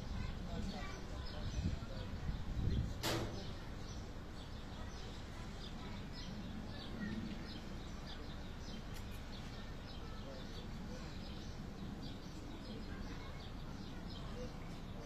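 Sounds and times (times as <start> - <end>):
small birds chirping: 0.0 - 15.0
sharp click: 3.0 - 3.4.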